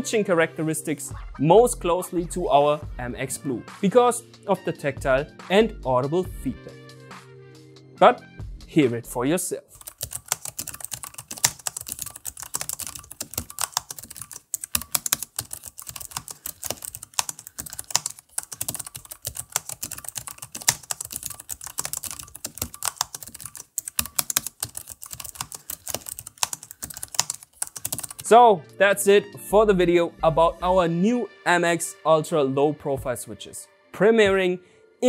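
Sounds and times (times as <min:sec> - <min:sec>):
fast typing on keyboard: 0:09.8 - 0:28.3.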